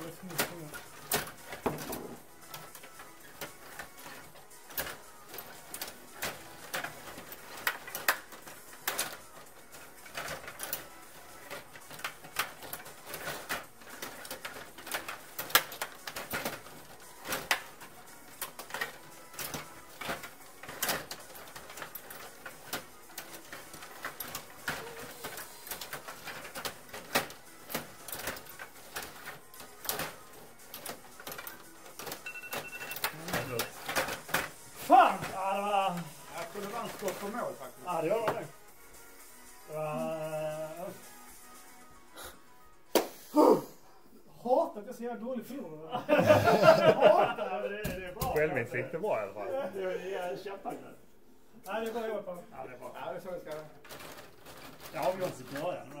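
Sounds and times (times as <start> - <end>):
table hockey clicks and knocks: 0.0 - 35.3.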